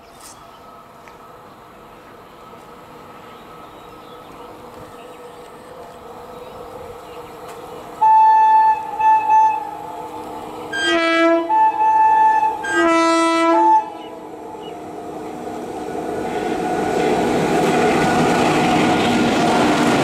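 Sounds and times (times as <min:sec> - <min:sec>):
freight train rumble: 0:00.0 - 0:20.0
locomotive horn blasts: 0:08.0 - 0:09.8, 0:10.7 - 0:14.1.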